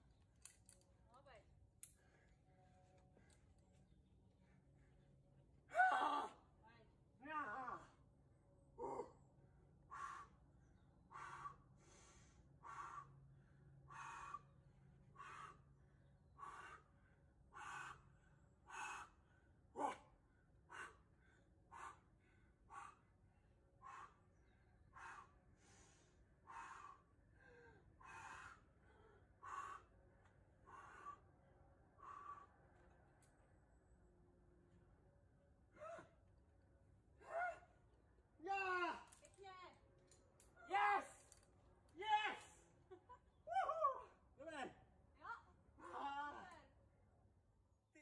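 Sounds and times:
person breathing hard: 11.1 - 20.0, 23.8 - 31.4.

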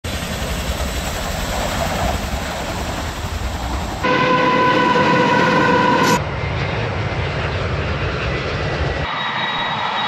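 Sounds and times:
helicopter rotor rumble: 0.0 - 10.0
locomotive horn: 4.0 - 6.2.

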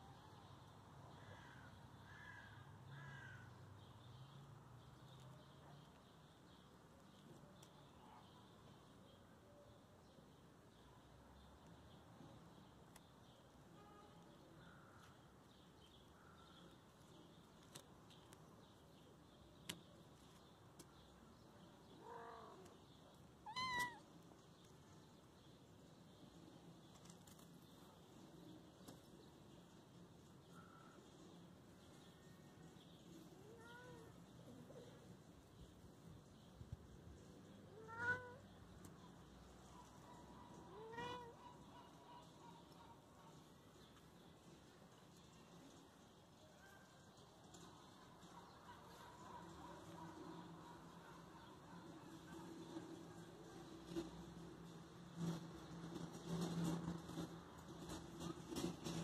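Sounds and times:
kittens meowing: 23.4 - 24.1, 33.4 - 34.2, 37.7 - 38.4, 40.7 - 41.4.

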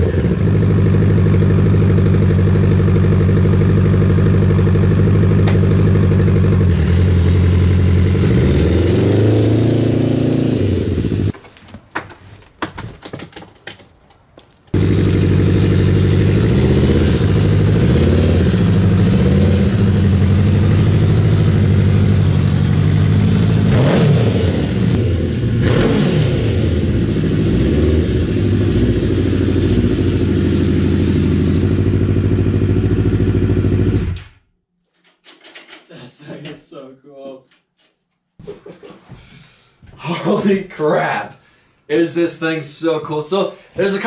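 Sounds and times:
buggy engine revving under load: 5.2 - 11.3, 14.7 - 34.2.

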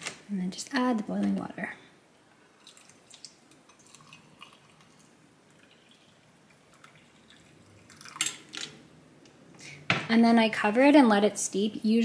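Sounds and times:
water pouring into mug: 2.6 - 8.3.

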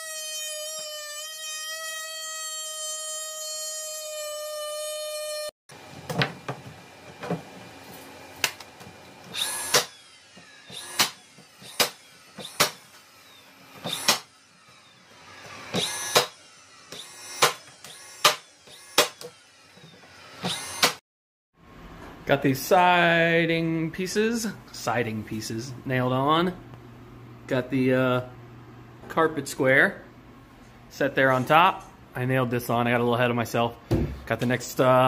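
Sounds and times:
nail gun shots into wood: 11.0 - 12.8, 13.9 - 14.3, 15.8 - 16.4, 17.4 - 17.6, 18.2 - 19.3.

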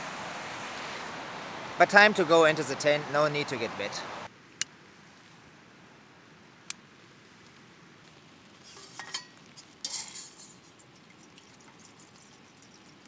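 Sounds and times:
water pouring into metal pot: 9.0 - 13.0.

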